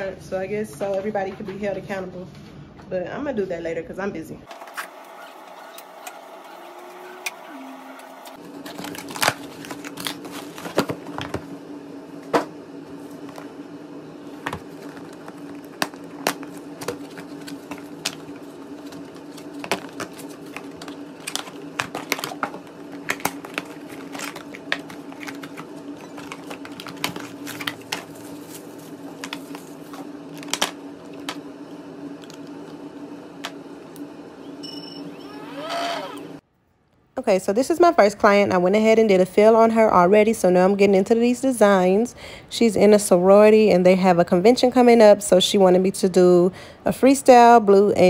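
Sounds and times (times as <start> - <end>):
cardboard and packaging rustling: 8.4 - 11.6, 14.3 - 31.4.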